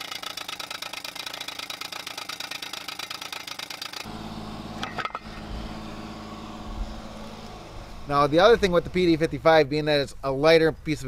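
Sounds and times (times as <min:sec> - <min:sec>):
low engine-like hum: 0:04.0 - 0:09.5.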